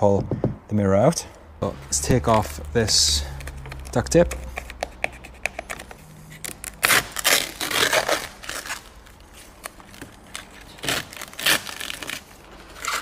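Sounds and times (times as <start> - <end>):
duct tape ripping: 6.3 - 13.0.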